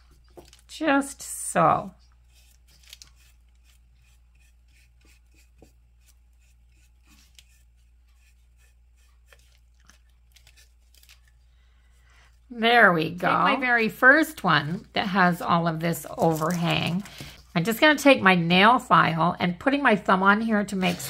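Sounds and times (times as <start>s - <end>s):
paintbrush dabbing glue: 2.2s - 10.0s.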